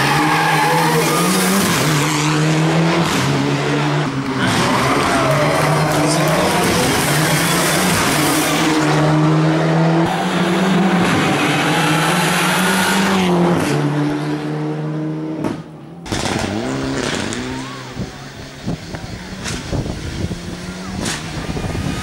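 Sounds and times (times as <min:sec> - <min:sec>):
engine revving: 0:00.0 - 0:22.0
rally car engine racing past: 0:00.0 - 0:22.0.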